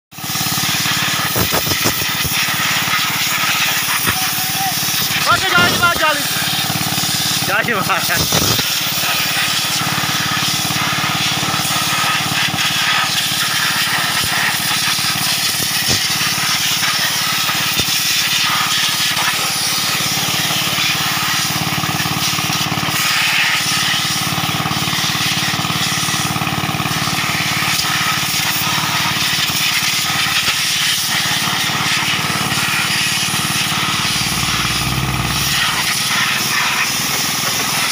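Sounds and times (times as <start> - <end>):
compressed air hissing: 0.3 - 21.6, 30.4 - 37.8
machine hum: 4.2 - 7.5, 32.2 - 36.6.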